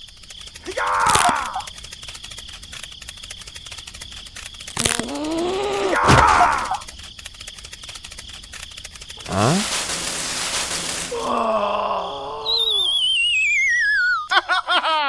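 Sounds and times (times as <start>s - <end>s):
rapid clicks: 0.0s - 11.8s
downward chirps: 9.2s - 14.3s
falling wobbling whistle: 12.4s - 14.3s.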